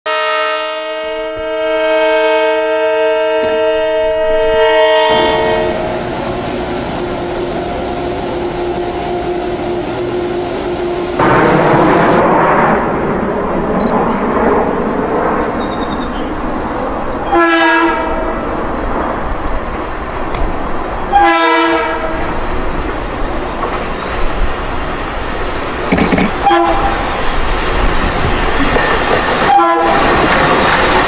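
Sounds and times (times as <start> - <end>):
multi-note train horn: 0.1 - 6.1, 7.2 - 11.4, 17.3 - 18.4, 21.1 - 22.3, 26.4 - 27.1, 29.4 - 30.2
moving train rumble: 0.1 - 31.0.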